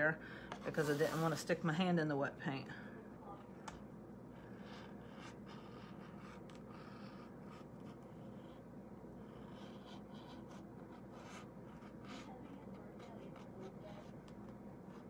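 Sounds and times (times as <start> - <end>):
low steady hum: 0.0 - 15.0
pen tip scratching: 4.6 - 8.6, 9.2 - 15.0.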